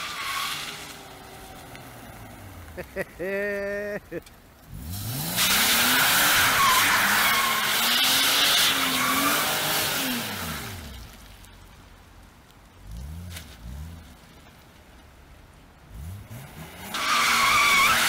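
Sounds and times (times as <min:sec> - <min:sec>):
car engine revving: 0:04.6 - 0:11.1
tyres squealing: 0:06.2 - 0:09.5, 0:16.9 - 0:18.0.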